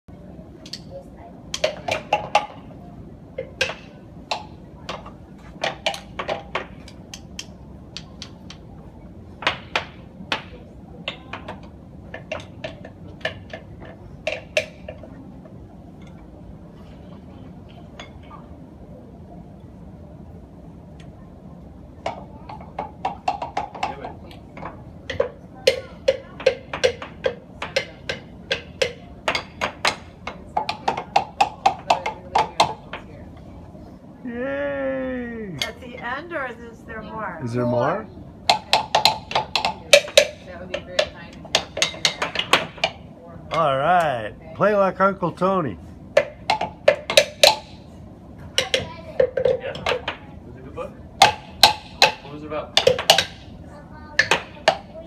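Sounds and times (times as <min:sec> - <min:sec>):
drumsticks knocking wooden blocks: 0:01.5 - 0:02.6, 0:22.8 - 0:33.0, 0:38.5 - 0:44.1, 0:46.2 - 0:47.8, 0:51.2 - 0:53.4.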